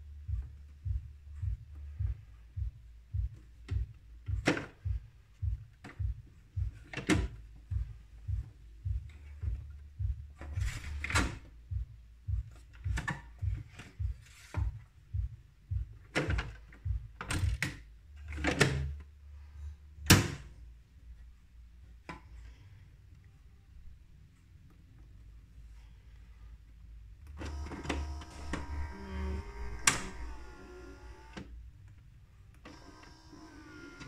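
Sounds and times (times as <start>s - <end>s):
pulsing low hum: 0.0s - 21.8s, 24.9s - 34.0s
plastic clicks and thunks: 3.7s - 9.6s, 16.0s - 19.0s.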